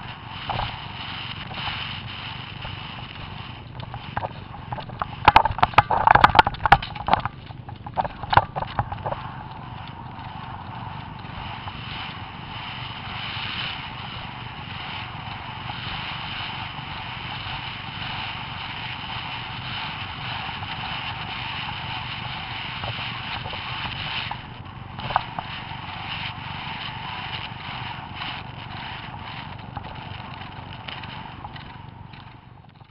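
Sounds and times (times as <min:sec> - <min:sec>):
wind rushing over microphone: 0:00.0 - 0:32.9
sharp knocks and rattles: 0:03.8 - 0:09.2.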